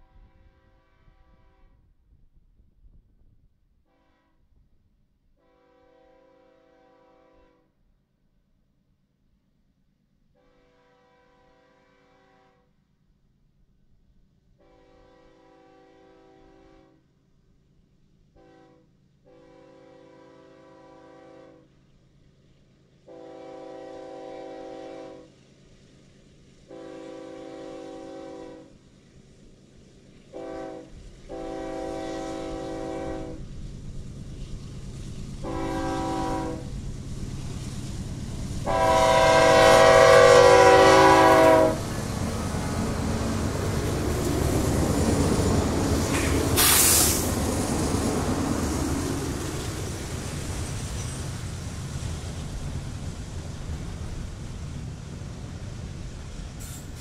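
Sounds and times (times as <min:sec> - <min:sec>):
locomotive air horn blasts: 0:00.0 - 0:01.8, 0:03.9 - 0:04.4, 0:05.4 - 0:07.6, 0:10.4 - 0:12.7, 0:14.6 - 0:17.0, 0:18.4 - 0:21.6, 0:23.1 - 0:25.3, 0:26.7 - 0:28.7, 0:30.3 - 0:33.4, 0:35.4 - 0:36.7, 0:38.6 - 0:41.9, 0:46.0 - 0:47.2
train rumbling past: 0:13.9 - 0:57.0.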